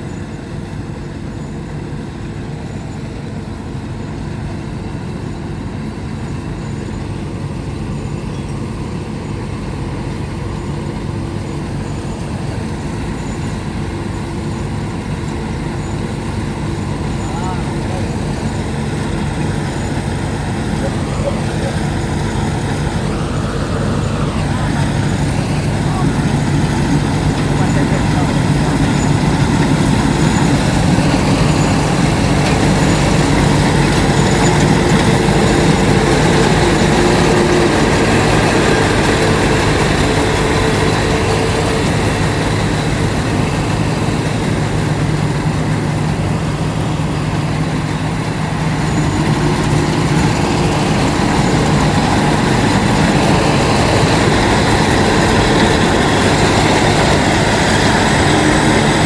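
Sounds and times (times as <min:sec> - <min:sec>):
combine harvester running: 0:00.0 - 0:59.0.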